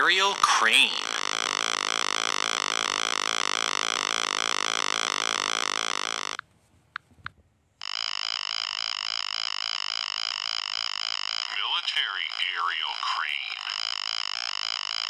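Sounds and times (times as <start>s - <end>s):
electronic helicopter buzz: 0.0s - 6.4s, 7.8s - 15.0s.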